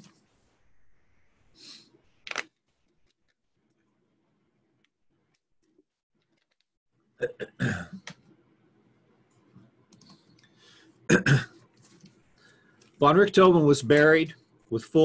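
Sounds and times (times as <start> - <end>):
throat clearing: 7.2 - 8.0, 11.1 - 11.6.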